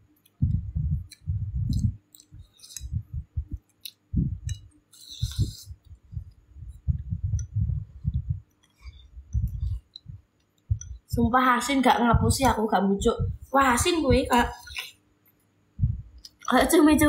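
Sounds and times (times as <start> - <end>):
dull low thumps: 0.4 - 4.7, 5.3 - 11.4, 12.0 - 14.4, 15.8 - 16.2.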